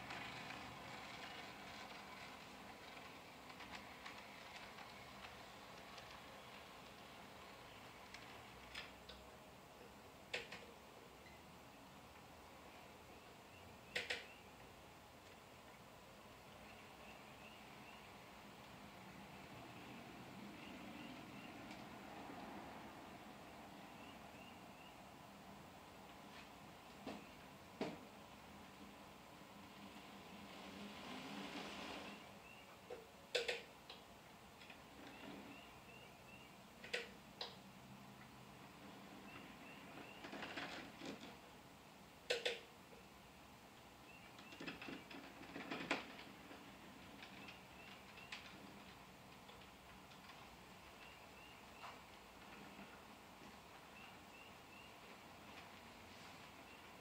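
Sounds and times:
model train clicking on track: 0.0 - 8.9.

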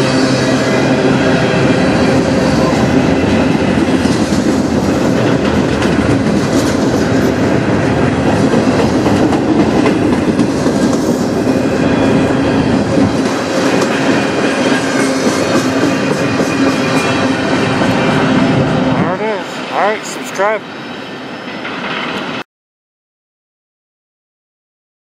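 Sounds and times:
train wheels rushing on rails: 0.0 - 22.4
clicks of train wheels: 13.0 - 17.2.

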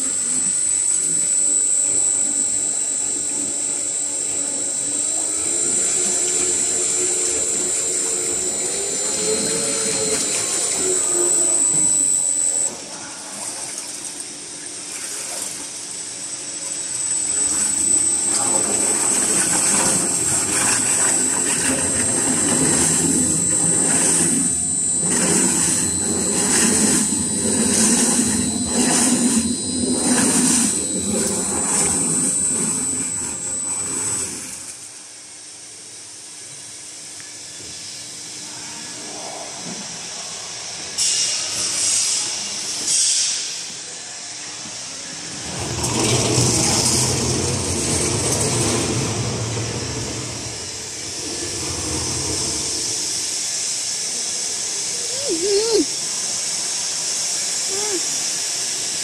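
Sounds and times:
steady high whine: 0.0 - 14.8, 15.5 - 59.0
mixer churning and splashing liquid: 4.3 - 12.7, 13.3 - 15.9, 16.8 - 34.8, 45.3 - 53.0
hiss: 37.5 - 45.2, 50.1 - 59.0.

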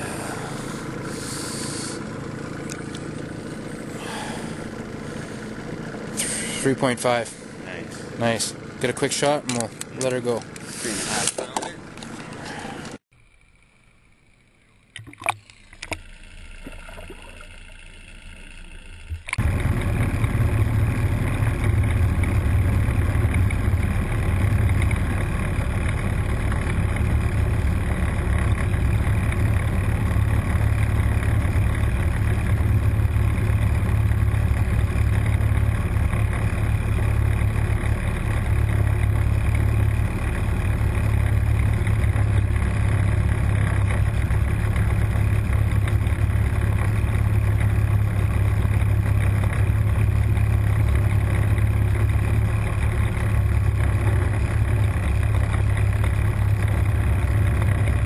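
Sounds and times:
small water splashes: 15.0 - 16.0, 16.6 - 17.8.

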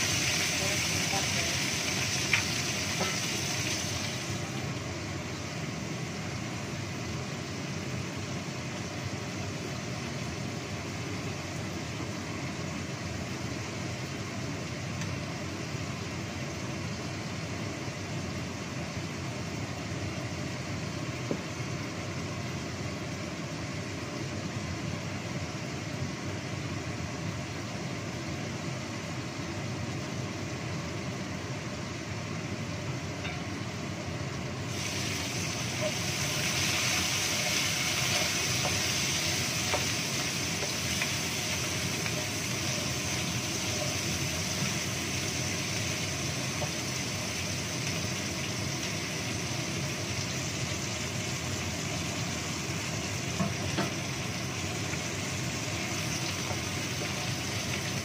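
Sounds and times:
chilies frying in oil: 0.0 - 58.0.

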